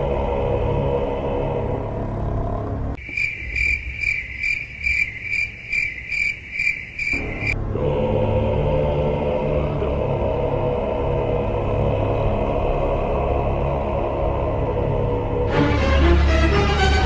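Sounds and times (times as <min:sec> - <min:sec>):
low droning music: 0:00.0 - 0:03.0, 0:07.1 - 0:17.0
cricket chirping: 0:03.0 - 0:07.6.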